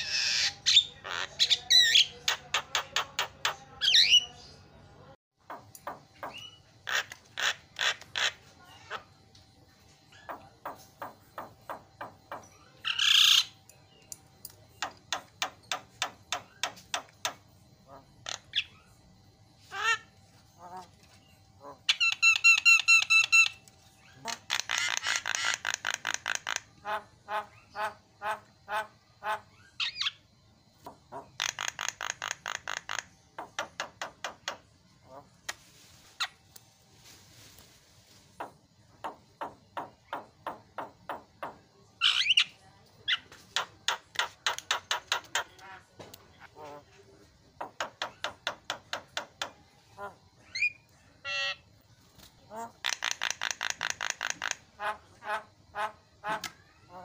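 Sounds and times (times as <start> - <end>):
myna bird calling: 47.6 - 51.7, 52.5 - 57.0.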